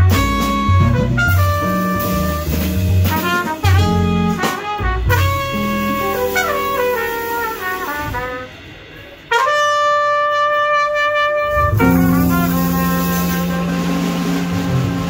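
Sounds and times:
jazz quartet playing: 0.0s - 15.0s
trumpet long high note: 3.6s - 8.6s, 9.3s - 15.0s.

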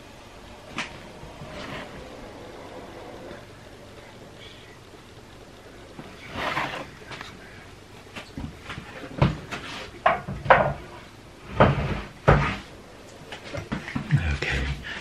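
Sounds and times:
kitchen things knocking and clunking: 9.2s - 10.9s.

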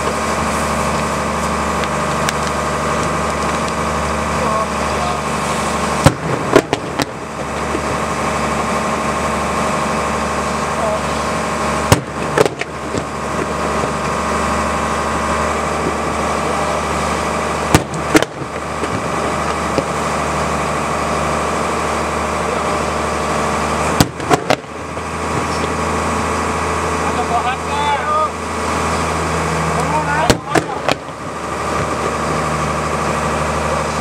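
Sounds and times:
boat engine running: 0.0s - 34.0s
firework bangs: 5.9s - 8.3s, 11.8s - 14.1s, 17.6s - 20.1s, 23.9s - 25.6s, 30.2s - 32.2s.

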